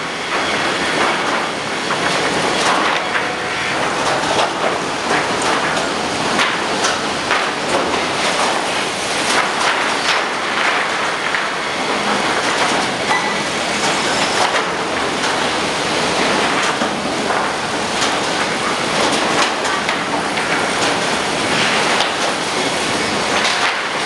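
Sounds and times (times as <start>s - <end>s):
boards clattering on roller conveyors: 0.0s - 24.0s.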